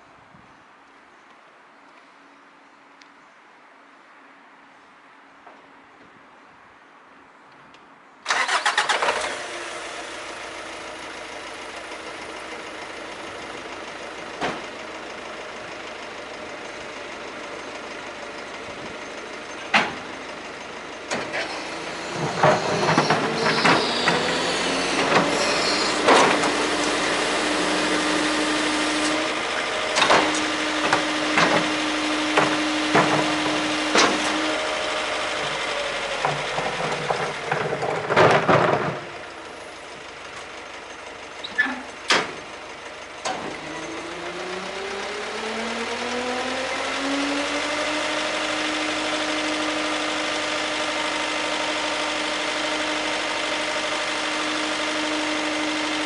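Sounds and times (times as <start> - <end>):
diesel engine starting and idling: 8.2 - 56.0
hydraulic lifter whine: 18.4 - 56.0.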